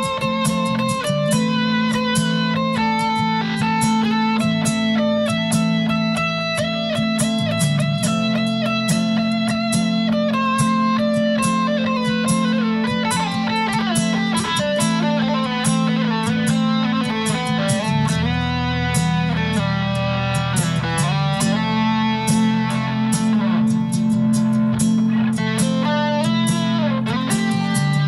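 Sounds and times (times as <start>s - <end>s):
fingerstyle nylon-string guitar: 0.0s - 28.0s.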